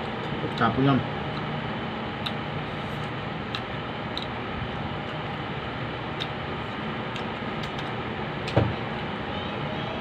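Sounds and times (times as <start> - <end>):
room noise hum: 0.0 - 10.0.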